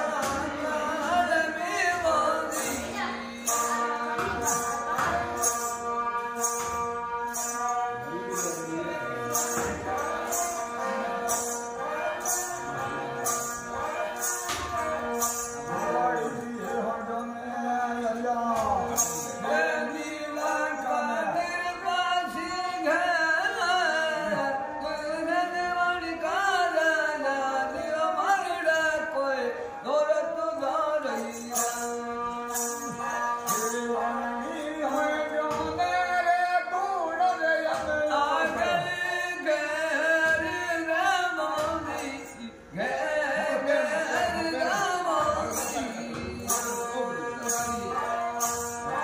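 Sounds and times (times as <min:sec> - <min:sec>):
bowed folk fiddle: 0:00.0 - 0:49.0
man singing folk song: 0:00.0 - 0:49.0
small jingling bells: 0:01.8 - 0:17.4, 0:18.8 - 0:20.9, 0:31.1 - 0:35.9, 0:43.6 - 0:49.0.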